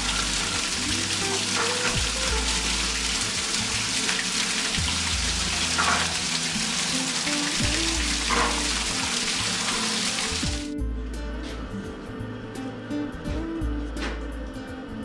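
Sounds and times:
water gushing into a bucket: 0:00.0 - 0:10.7
water splashing on metal grate: 0:00.0 - 0:10.7
background music: 0:00.0 - 0:15.0.

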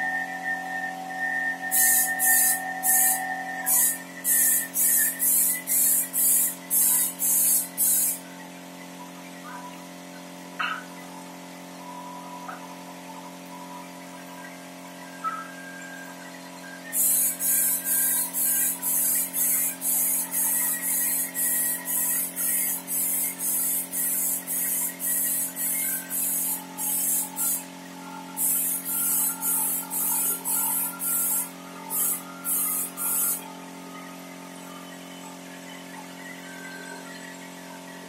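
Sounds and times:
steady low hum: 0:00.0 - 0:38.0
spray gun hissing bursts: 0:01.7 - 0:08.2, 0:17.0 - 0:27.7, 0:28.4 - 0:33.4.

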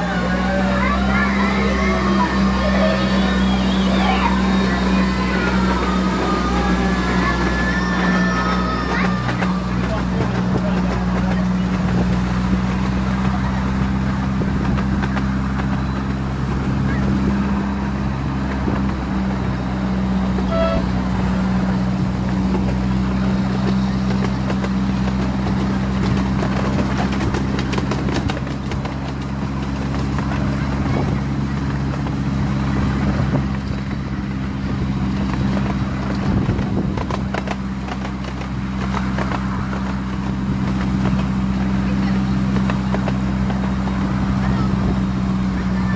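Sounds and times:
brief high tone: 0:20.4 - 0:21.1.

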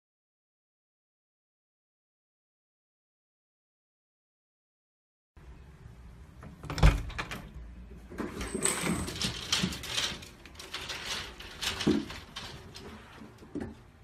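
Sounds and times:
baby gate clicks and rattles: 0:08.2 - 0:13.8.

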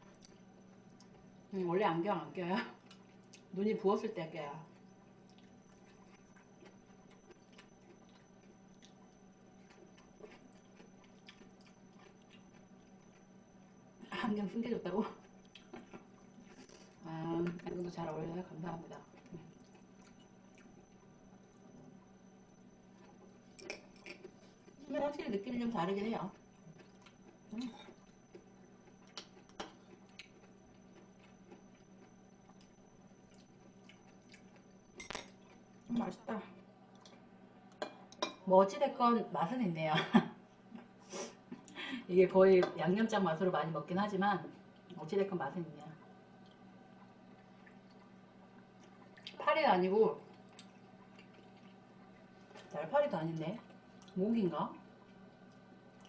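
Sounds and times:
faint steady hum: 0:00.0 - 0:56.0
person chewing: 0:05.2 - 0:13.3, 0:15.2 - 0:17.0, 0:19.2 - 0:21.0, 0:22.9 - 0:24.8, 0:26.3 - 0:35.8, 0:46.4 - 0:49.4, 0:50.3 - 0:52.7.

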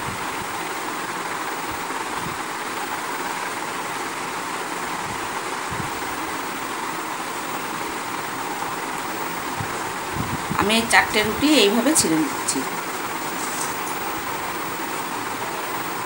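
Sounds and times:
whooshing room noise: 0:00.0 - 0:16.0.

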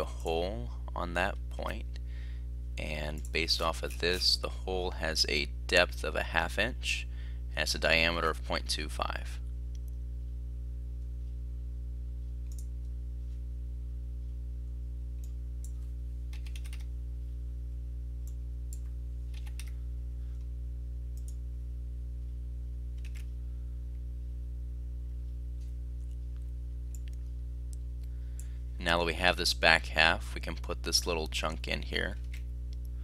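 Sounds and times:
steady low hum: 0:00.0 - 0:33.0
computer mouse clicks: 0:12.4 - 0:12.7, 0:15.2 - 0:16.9, 0:18.2 - 0:19.8, 0:21.2 - 0:21.4, 0:23.0 - 0:23.3
keyboard keystrokes: 0:16.3 - 0:16.9, 0:18.8 - 0:19.7.

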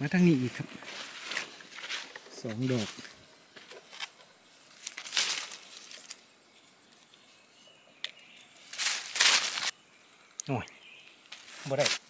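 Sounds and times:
dry leaves rustling and crunching: 0:00.8 - 0:06.2, 0:08.7 - 0:09.7, 0:11.3 - 0:12.0
twigs snapping: 0:03.7 - 0:06.2, 0:08.0 - 0:09.7.

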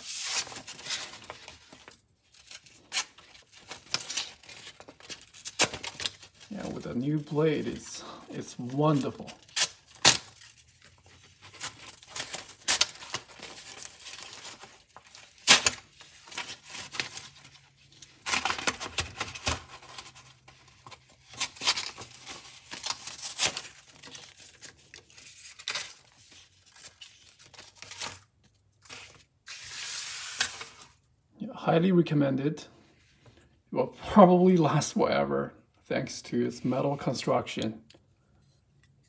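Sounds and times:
paper rustling: 0:00.0 - 0:31.0
knife slicing through paper: 0:29.5 - 0:30.9.

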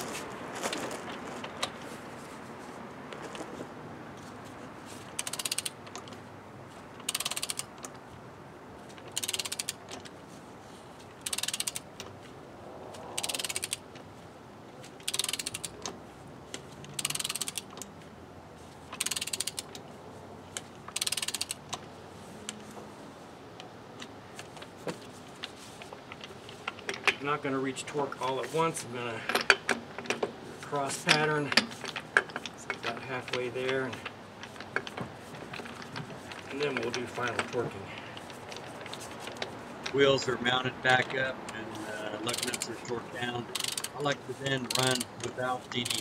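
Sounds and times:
ratchet wrench clicking: 0:05.2 - 0:06.1, 0:07.0 - 0:07.7, 0:09.1 - 0:09.8, 0:11.2 - 0:11.9, 0:13.2 - 0:13.8, 0:15.0 - 0:15.8, 0:16.9 - 0:17.8, 0:19.0 - 0:19.8, 0:20.9 - 0:21.8, 0:42.2 - 0:42.9, 0:43.5 - 0:44.0, 0:44.6 - 0:46.0.

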